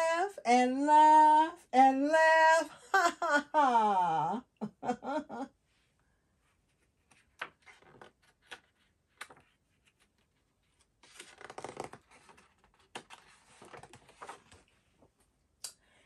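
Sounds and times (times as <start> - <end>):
book pages turning: 6.7 - 15.1.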